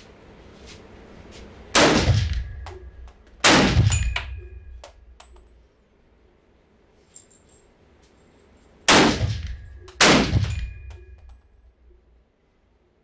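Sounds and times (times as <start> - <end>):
rifle shots echoing: 1.8 - 2.6, 3.4 - 4.8, 8.9 - 10.9
light metallic clinks: 3.9 - 5.7, 7.0 - 8.8, 9.7 - 11.7.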